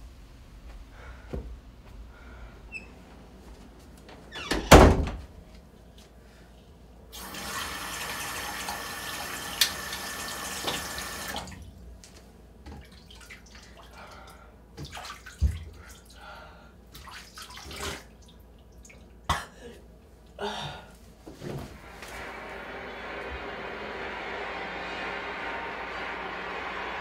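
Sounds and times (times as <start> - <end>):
sink tap running: 7.2 - 11.4.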